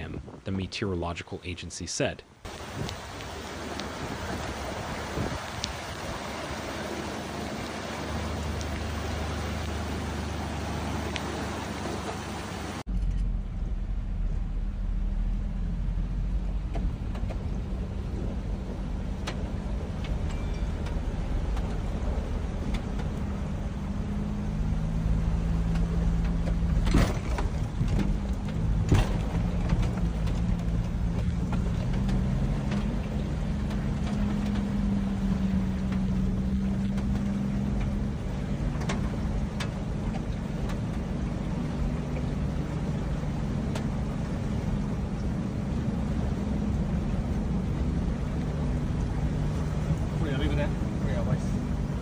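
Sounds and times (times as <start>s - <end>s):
heavy rain and rushing floodwater: 0.0s - 12.9s, 15.0s - 52.0s
low rumble: 2.4s - 52.0s
hum changing pitch: 2.6s - 40.0s.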